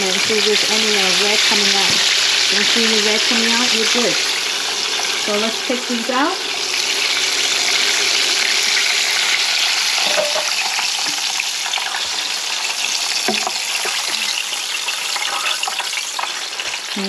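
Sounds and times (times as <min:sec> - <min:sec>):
chicken wings sizzling in hot oil: 0:00.0 - 0:17.0
metal tongs clinking: 0:10.0 - 0:10.6.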